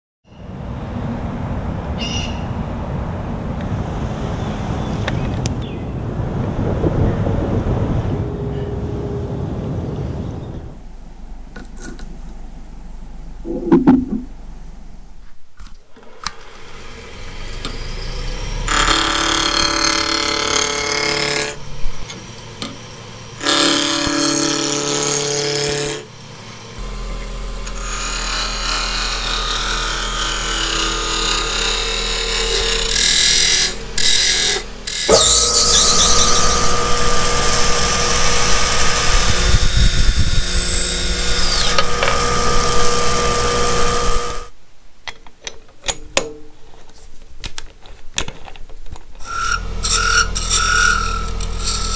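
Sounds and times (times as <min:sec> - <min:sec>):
steady whine: 0:08.0 - 0:44.6, 0:49.2 - 0:51.9
turning tool cutting wood: 0:16.0 - 0:44.5, 0:49.2 - 0:51.9
wood lathe hum: 0:16.0 - 0:44.5, 0:49.2 - 0:51.9.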